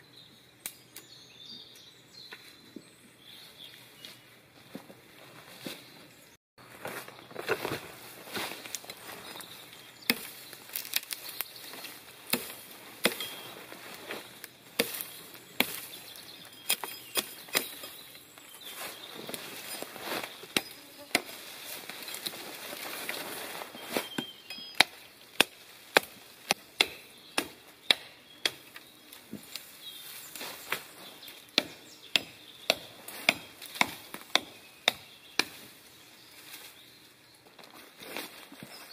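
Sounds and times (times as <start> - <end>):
hatchet chopping branches: 8.5 - 13.5, 14.3 - 18.2, 20.5 - 22.4, 24.0 - 29.7, 30.7 - 35.8.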